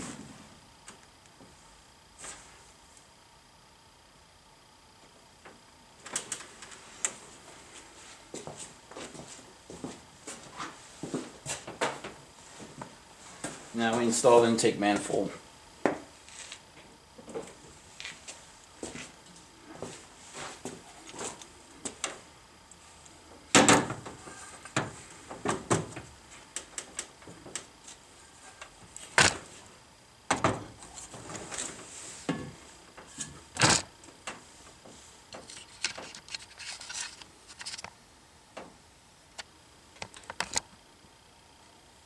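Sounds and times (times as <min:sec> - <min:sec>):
metal clunks and scrapes: 0:30.4 - 0:33.8.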